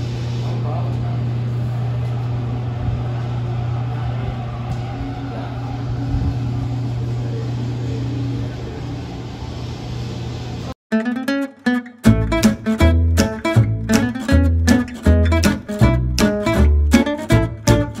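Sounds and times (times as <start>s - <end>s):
low machine hum: 0.0s - 10.7s.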